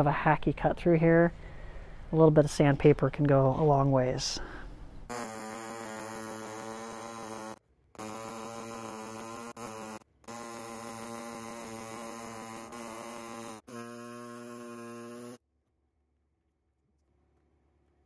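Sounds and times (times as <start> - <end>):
air saw cutting plastic: 5.1 - 15.4.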